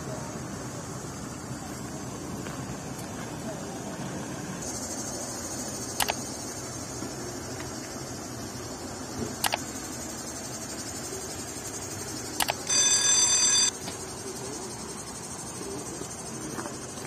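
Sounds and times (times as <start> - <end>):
steady background noise: 0.0 - 17.0
notification bell ringing: 12.7 - 13.7.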